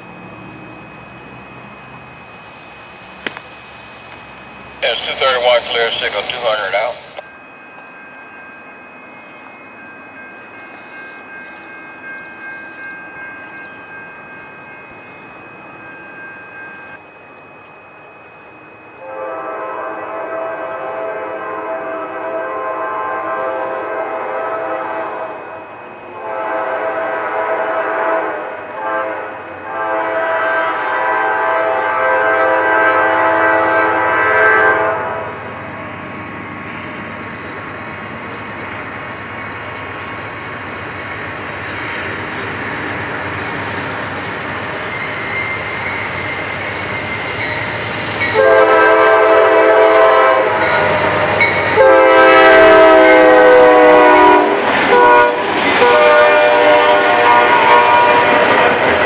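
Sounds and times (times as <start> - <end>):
rumble of passing train: 0.0 - 59.0
locomotive horn blasts: 19.0 - 35.4, 48.3 - 50.9, 51.7 - 58.9.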